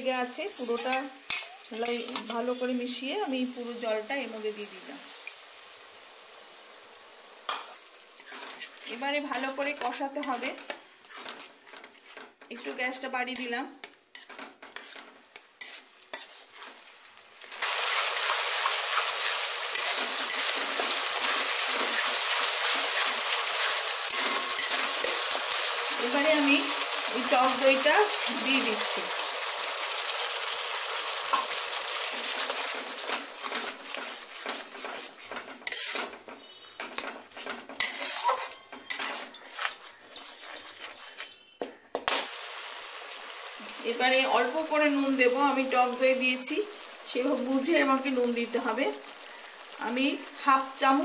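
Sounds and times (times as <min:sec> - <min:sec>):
loud frying sizzle: 0:00.0 - 0:41.2, 0:42.1 - 0:51.0
metal spatula scraping and stirring: 0:00.1 - 0:02.8, 0:07.5 - 0:29.0, 0:31.3 - 0:42.3.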